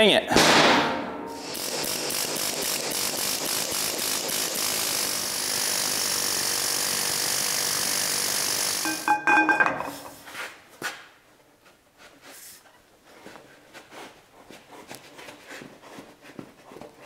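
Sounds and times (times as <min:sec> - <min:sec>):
pneumatic air tool hissing: 0:01.4 - 0:08.9
ringing metallic clanks: 0:08.8 - 0:10.2.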